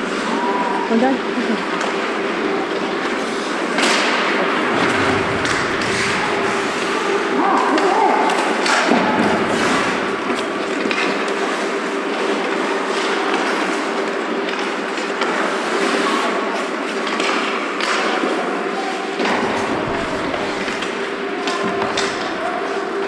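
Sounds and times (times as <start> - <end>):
steady machinery hum: 4.5 - 8.0, 8.9 - 11.0, 19.2 - 23.0.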